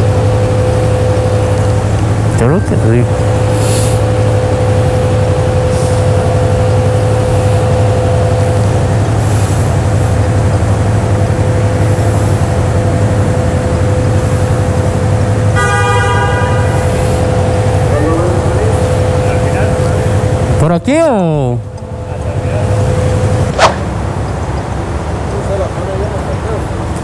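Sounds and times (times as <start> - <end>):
vehicle engine whining: 0.0 - 27.0.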